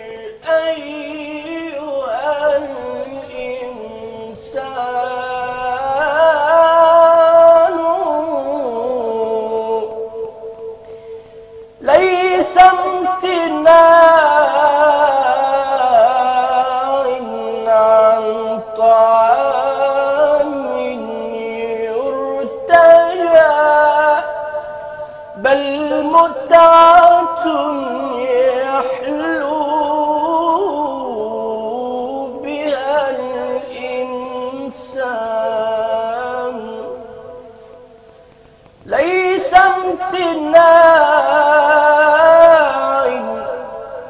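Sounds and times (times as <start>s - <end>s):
man singing solo: 0.0s - 37.6s, 38.8s - 44.0s
singer's short breaths: 10.8s - 11.6s, 24.9s - 25.4s.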